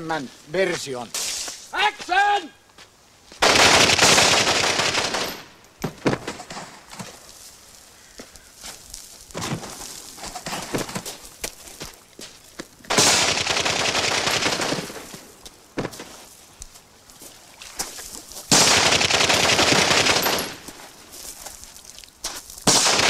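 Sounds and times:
body tumbling down gravel: 0:02.8 - 0:22.8
rapid gunfire: 0:03.4 - 0:05.5, 0:12.9 - 0:15.1, 0:18.5 - 0:20.6, 0:22.7 - 0:23.0.

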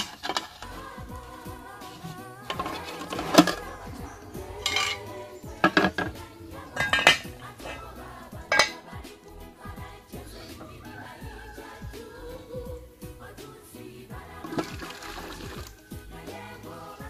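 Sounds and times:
metal pots clinking together: 0:00.0 - 0:00.7, 0:02.0 - 0:04.0, 0:04.6 - 0:06.2, 0:06.8 - 0:07.8, 0:08.5 - 0:08.9.

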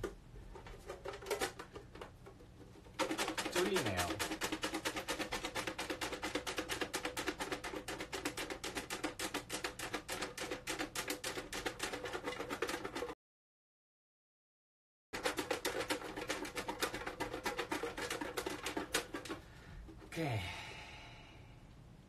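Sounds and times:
box rattling when shaken: 0:00.0 - 0:02.0, 0:02.6 - 0:13.1, 0:15.2 - 0:20.1.

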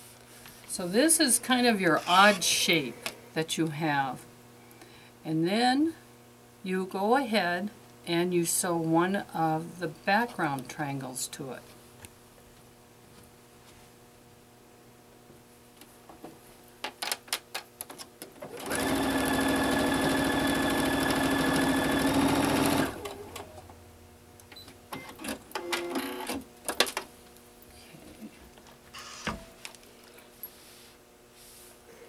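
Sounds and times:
sewing machine running: 0:18.5 - 0:23.6.

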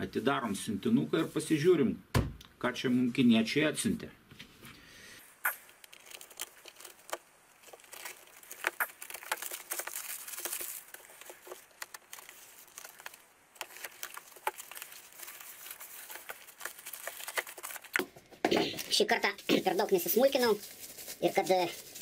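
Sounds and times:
packaging crinkling and tearing: 0:05.5 - 0:18.1, 0:18.7 - 0:22.0.

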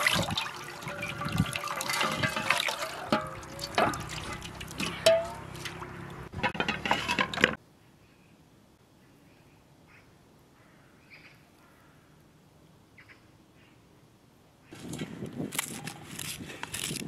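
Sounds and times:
water splashing in metal bowl: 0:00.0 - 0:07.6.

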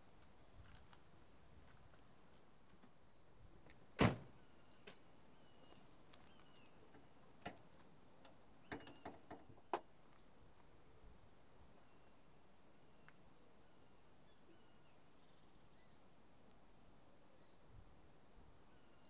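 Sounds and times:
faint bird chirps: 0:03.4 - 0:09.3, 0:11.2 - 0:19.0.

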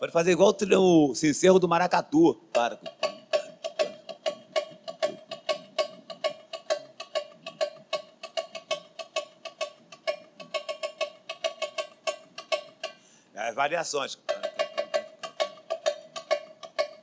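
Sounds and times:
tamborim struck with beater: 0:02.6 - 0:13.0, 0:14.2 - 0:17.0.

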